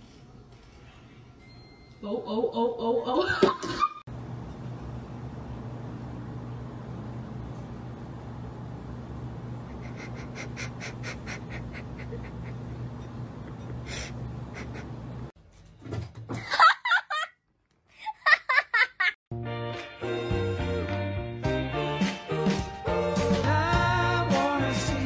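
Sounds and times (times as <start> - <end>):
low room hum: 4.1 - 15.7
person laughing quietly: 9.5 - 15.3.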